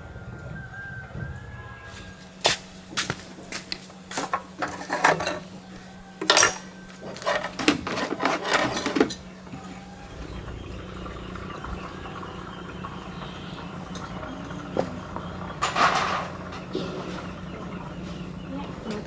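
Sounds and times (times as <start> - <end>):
metal tools clinking: 4.2 - 5.6, 6.2 - 9.2.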